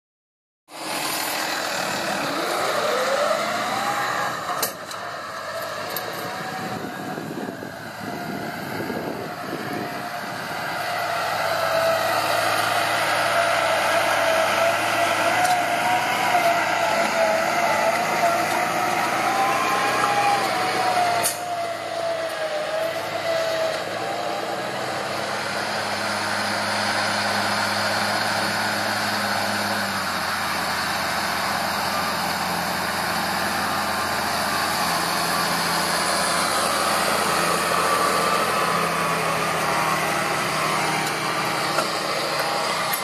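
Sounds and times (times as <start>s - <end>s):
tractor diesel engine under load: 0.7s - 43.0s.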